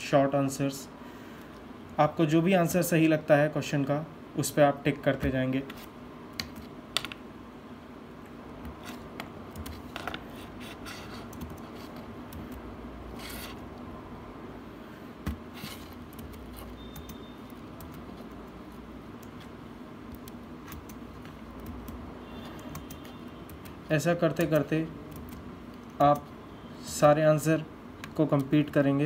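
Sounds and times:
steady low hum: 0.8 - 27.0
short scraping rubs: 13.1 - 13.6.

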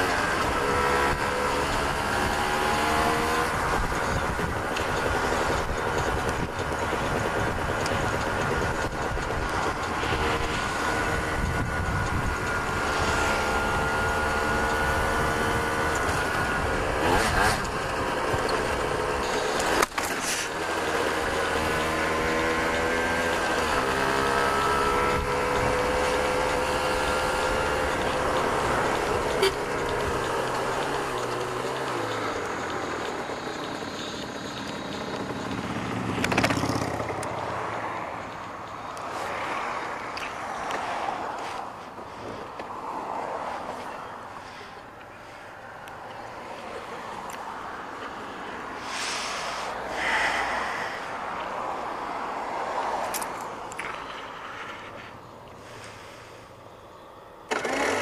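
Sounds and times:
motorcycle two-stroke engine running: 0.0 - 58.0
car driving past: 46.4 - 53.2.

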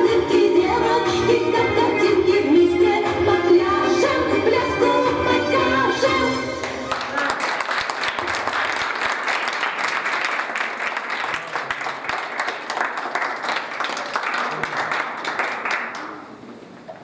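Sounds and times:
audience applauding: 6.6 - 16.4.

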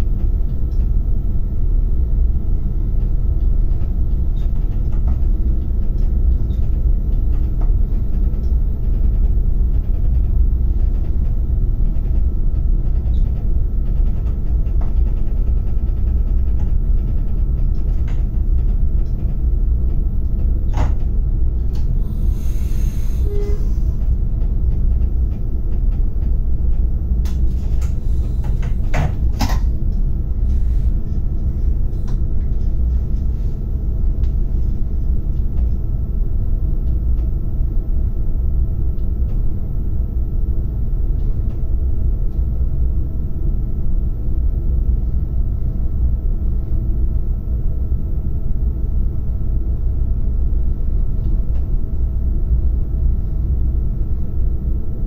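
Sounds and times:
wheels rumbling on rail: 0.0 - 35.9
faint steady whine: 14.7 - 55.0.

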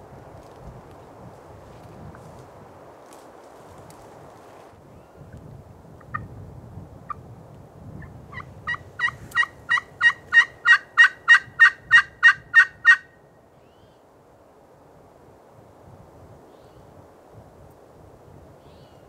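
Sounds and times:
turkey yelping: 8.3 - 13.1.

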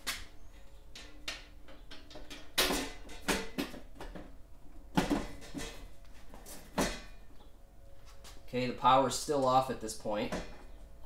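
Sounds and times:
metal panel cover clicks and knocks: 1.0 - 4.2.

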